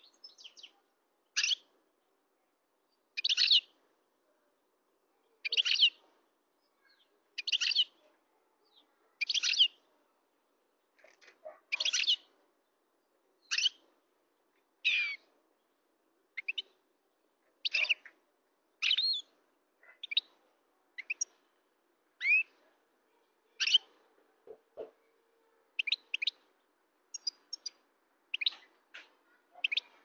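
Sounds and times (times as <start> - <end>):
finch twittering song: 1.4 - 1.7, 3.2 - 3.7, 5.4 - 6.0, 6.8 - 8.0, 9.2 - 9.8, 11.7 - 12.3, 13.4 - 13.9, 14.8 - 15.3, 16.4 - 16.8, 18.8 - 19.3, 20.0 - 20.4, 21.0 - 21.4, 22.2 - 22.6, 23.6 - 23.9, 25.8 - 26.4, 27.1 - 30.0.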